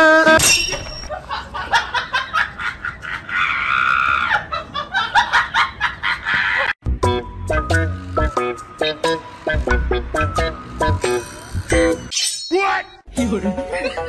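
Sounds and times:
people laughing: 0:01.1 - 0:06.8, 0:13.2 - 0:14.0.

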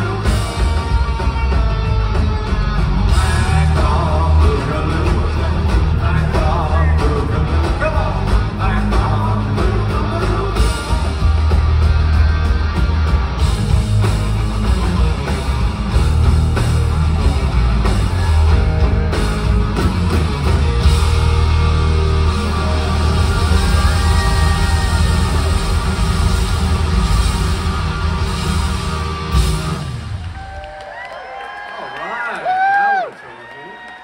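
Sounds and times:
live rock band playing: 0:00.0 - 0:30.8
person singing: 0:03.1 - 0:11.4.

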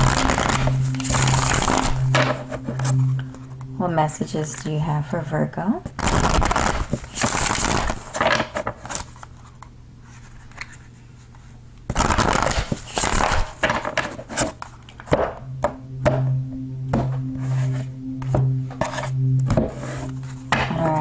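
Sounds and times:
soft background music: 0:00.0 - 0:07.9, 0:15.2 - 0:21.0
cards being shuffled: 0:06.0 - 0:10.9, 0:11.9 - 0:14.6.

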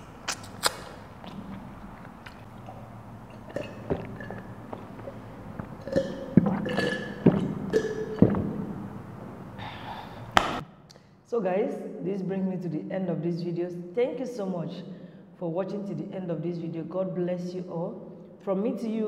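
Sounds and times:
person gulping water: 0:00.0 - 0:10.6.

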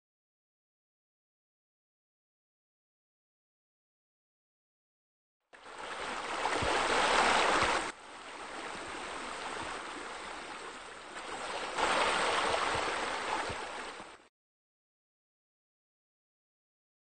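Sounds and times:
fountain water splashing: 0:05.7 - 0:14.1.

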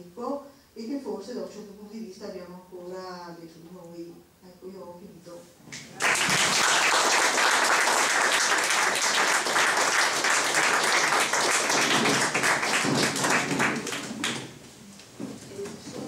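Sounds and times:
audience applauding: 0:05.8 - 0:14.5.

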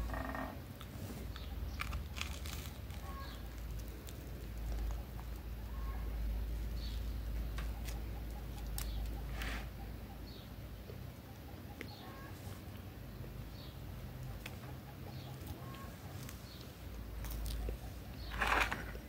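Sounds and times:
crusty bread crunching: 0:00.8 - 0:09.2, 0:16.1 - 0:19.0
plastic wrapping crinkling: 0:01.7 - 0:05.5
faint bird chirps: 0:03.0 - 0:03.6, 0:04.6 - 0:12.6, 0:13.3 - 0:16.7.

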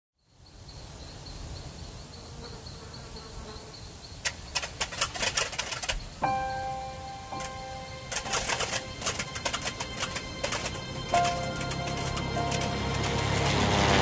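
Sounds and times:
bird wings flapping: 0:04.2 - 0:06.2, 0:07.4 - 0:14.0
held music chord: 0:06.2 - 0:14.0.

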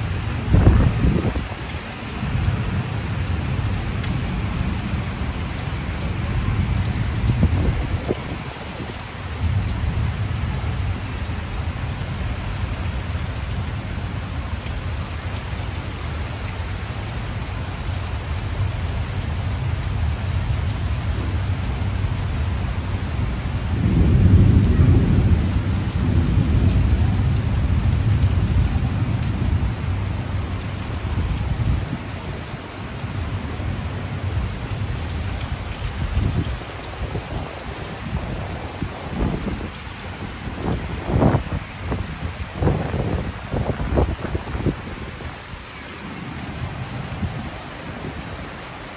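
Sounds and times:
low thunder rumbling: 0:00.0 - 0:14.5, 0:19.6 - 0:32.2
heavy rain pouring: 0:00.0 - 0:48.9.

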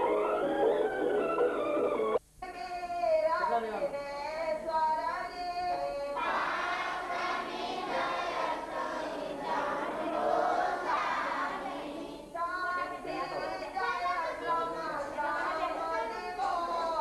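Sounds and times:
congregation singing: 0:06.2 - 0:12.4.

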